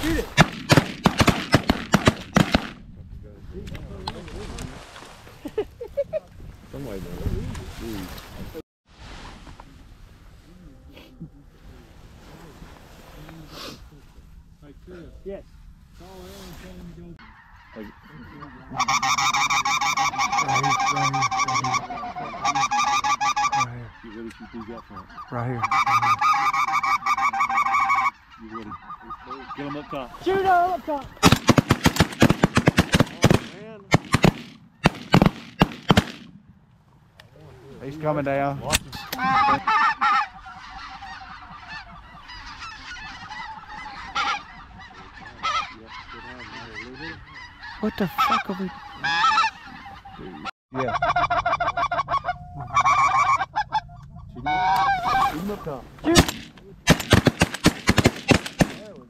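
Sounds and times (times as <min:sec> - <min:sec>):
geese honking: 0:16.2 - 0:36.1, 0:37.8 - 0:59.0
goose call yelping: 0:17.2 - 0:31.4, 0:38.9 - 0:56.5.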